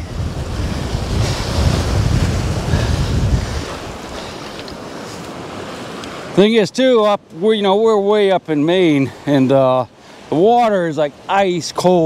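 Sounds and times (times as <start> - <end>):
wind rumbling on microphone: 0.0 - 6.3
waves breaking on pebbles: 0.0 - 6.4.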